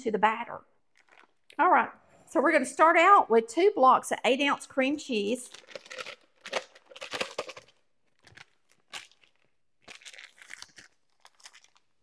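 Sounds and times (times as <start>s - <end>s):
foil wrapper crinkling: 0.9s - 1.4s, 5.5s - 12.0s.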